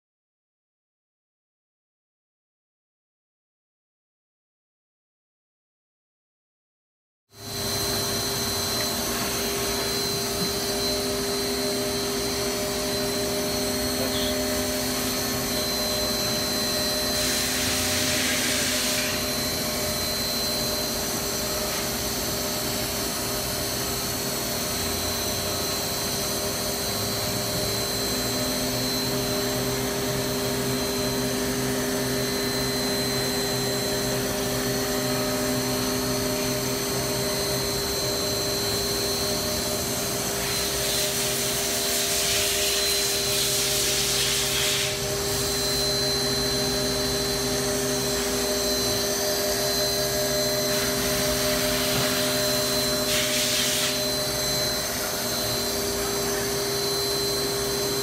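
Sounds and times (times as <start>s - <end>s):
machine hum with high whine: 7.3s - 58.0s
machine hiss: 17.0s - 19.4s, 40.4s - 45.6s, 50.6s - 54.0s.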